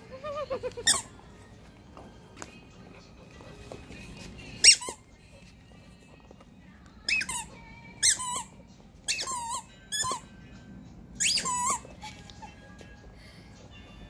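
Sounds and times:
squeaky toy squeaking: 0.0 - 1.2, 4.4 - 5.2, 7.0 - 10.3, 11.2 - 12.6.

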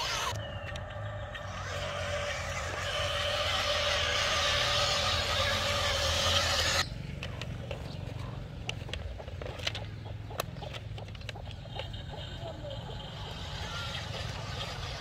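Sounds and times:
low hum: 0.0 - 8.4
electric motor and gears whirring: 0.0 - 15.0.

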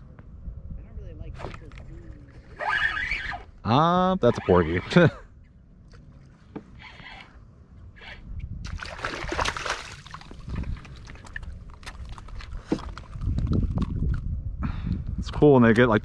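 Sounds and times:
water sloshing against hull: 5.5 - 14.2
fish splashing at water surface: 8.7 - 13.2.

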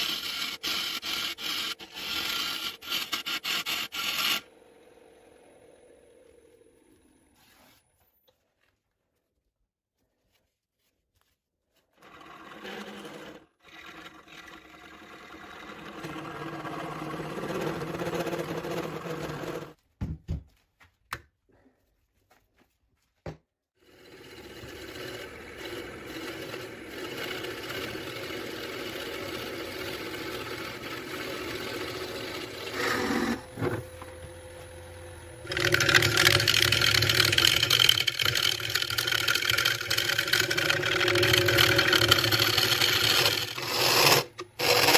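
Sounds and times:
drill bit boring into wood: 0.0 - 4.5, 23.9 - 44.9
wood lathe running: 0.0 - 7.1, 12.0 - 19.8, 23.8 - 44.9.

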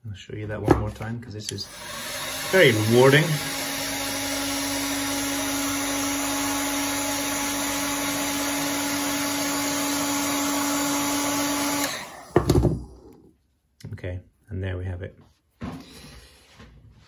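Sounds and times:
heat gun humming: 1.5 - 13.3.

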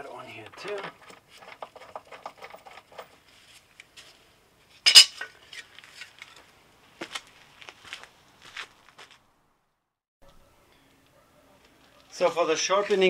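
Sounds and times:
metal tools clinking and clanking: 0.4 - 3.2, 4.8 - 5.3.

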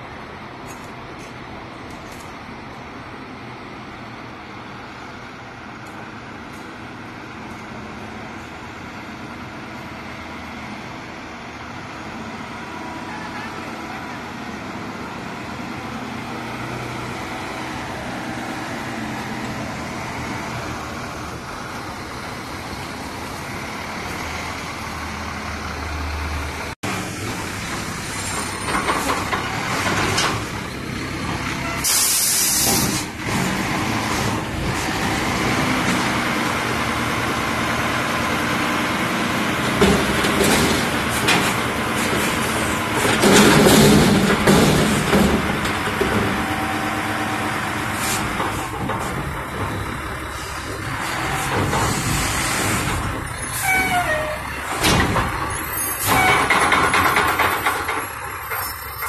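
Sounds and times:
garbage truck diesel engine: 0.0 - 59.0
air brake hiss: 31.8 - 33.1.

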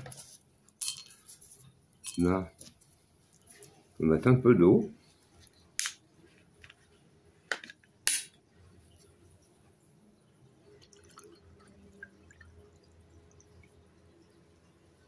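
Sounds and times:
water pouring into a glass: 10.6 - 14.8.

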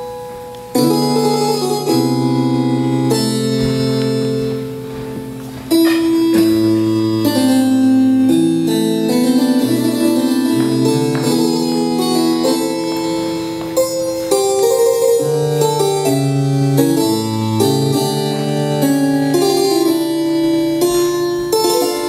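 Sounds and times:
instrumental keyboard music: 0.0 - 22.0.

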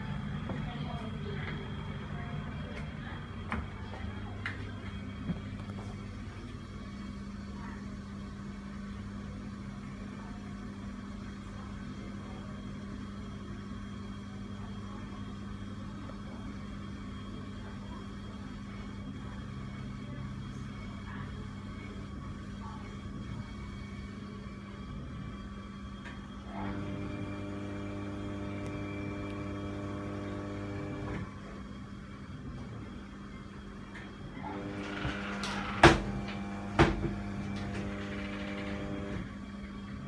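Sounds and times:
exhaust fan motor hum: 0.0 - 40.0.

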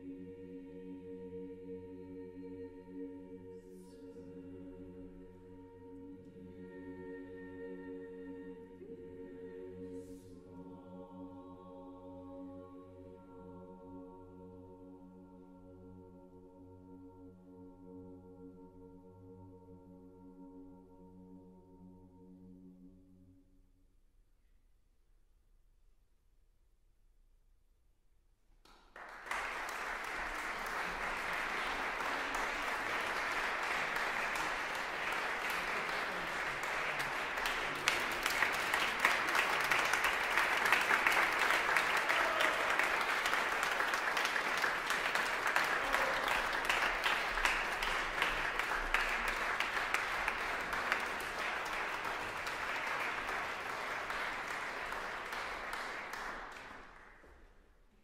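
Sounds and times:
audience applause: 28.7 - 57.3.

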